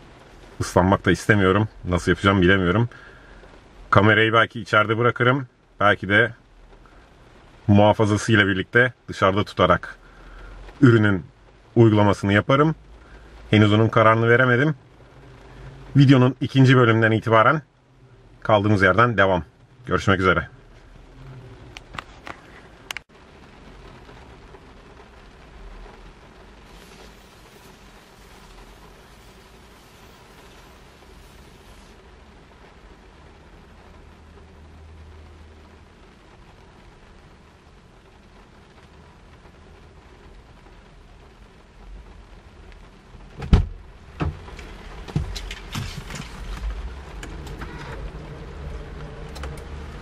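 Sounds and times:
rain hissing on car windshield: 0:00.0 - 0:50.0
spray misting onto glass: 0:26.5 - 0:32.1.

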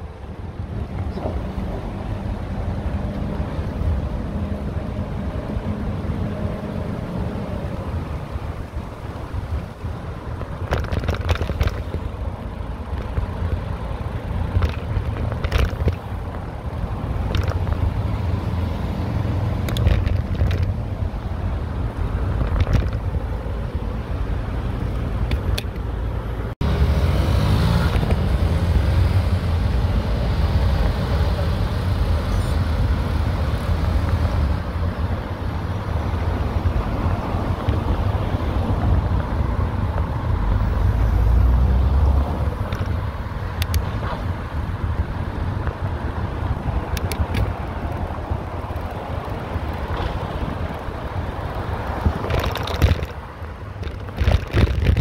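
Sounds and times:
bicycle road noise: 0:00.0 - 0:55.0
wind rumble on microphone: 0:00.0 - 0:55.0.

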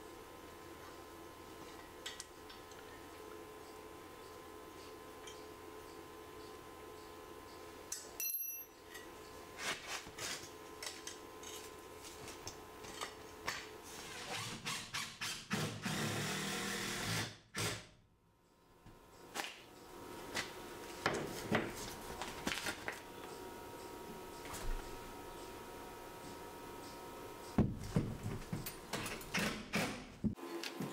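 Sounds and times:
hand-held power tool on metal: 0:14.0 - 0:17.9.

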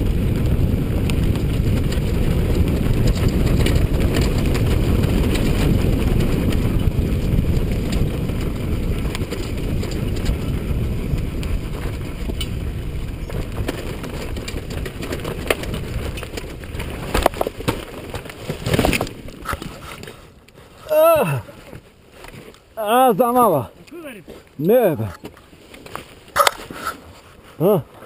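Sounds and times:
wind on microphone: 0:00.0 - 0:21.8
stones clicking under tyres: 0:00.0 - 0:22.8, 0:23.7 - 0:27.2
dirt bike engine rumbling: 0:00.0 - 0:25.4.

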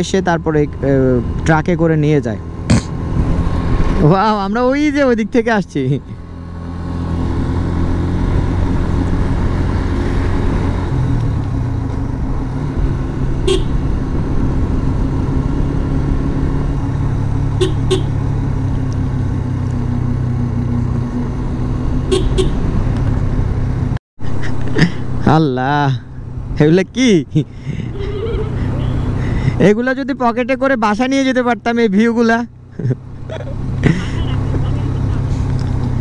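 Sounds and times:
motorcycle engine running: 0:01.9 - 0:23.9
motorcycle horn toots: 0:13.4 - 0:13.8, 0:17.6 - 0:18.2, 0:22.1 - 0:22.7.

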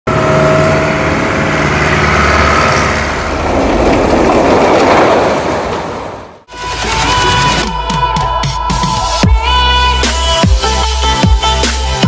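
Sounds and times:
truck engine running: 0:00.1 - 0:07.5
rushing noise: 0:00.1 - 0:07.7.

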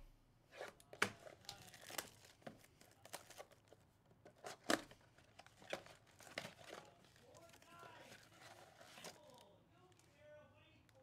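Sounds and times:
plastic shrink-wrap crackling: 0:01.4 - 0:03.6.

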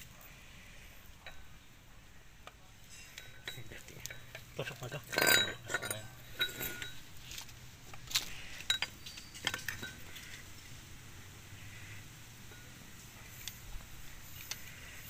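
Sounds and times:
metal parts clinking and tapping: 0:01.2 - 0:01.6, 0:02.4 - 0:10.4.

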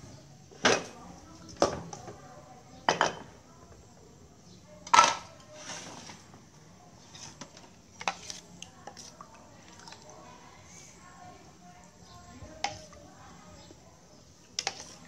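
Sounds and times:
dishes and cutlery clinking: 0:02.9 - 0:03.3, 0:04.9 - 0:06.0
metal spoon scraping a bowl: 0:07.0 - 0:09.1, 0:14.5 - 0:15.0.

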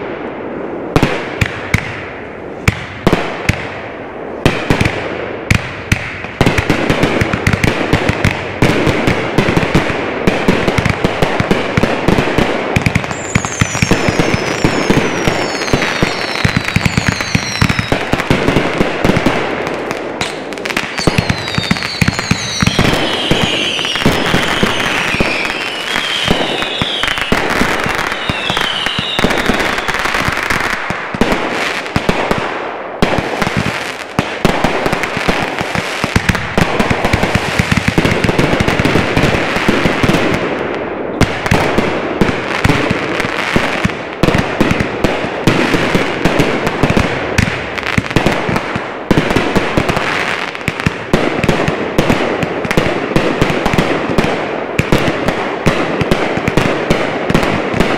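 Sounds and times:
fireworks bangs and crackles: 0:00.0 - 0:57.9
firework whistles falling in pitch: 0:13.1 - 0:17.9, 0:21.0 - 0:27.4, 0:28.1 - 0:30.0.

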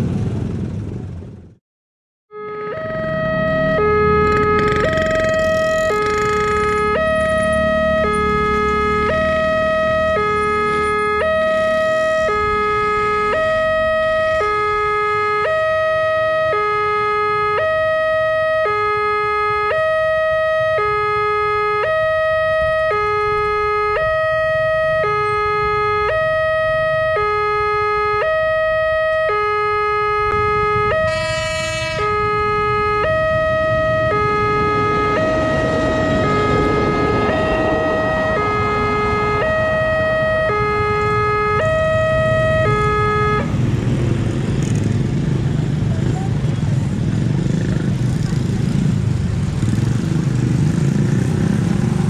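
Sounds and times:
level-crossing two-tone alarm: 0:02.3 - 0:43.5
short horn: 0:30.9 - 0:32.2
steady high tone: 0:30.9 - 0:43.5.

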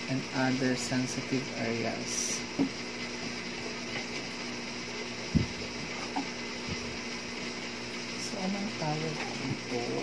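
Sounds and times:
dull low thump: 0:05.3 - 0:05.6.

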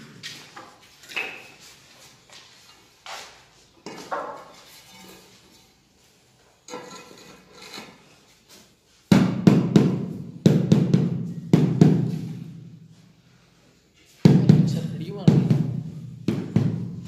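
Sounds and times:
rubber mallet thudding on tile: 0:09.1 - 0:12.4, 0:14.2 - 0:17.0.

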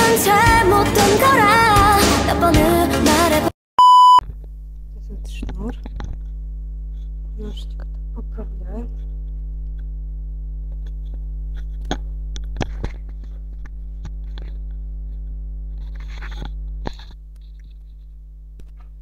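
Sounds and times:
electrical mains hum: 0:04.2 - 0:19.0.

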